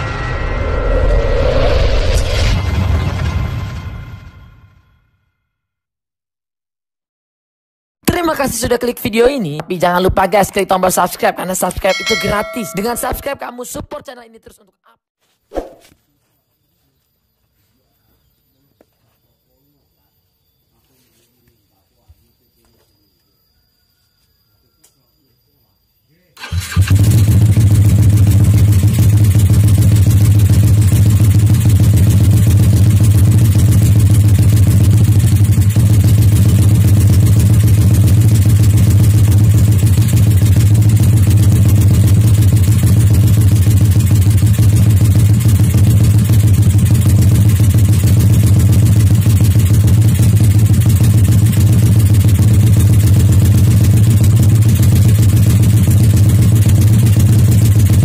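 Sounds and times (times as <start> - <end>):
motorcycle engine idling: 26.4 - 58.0.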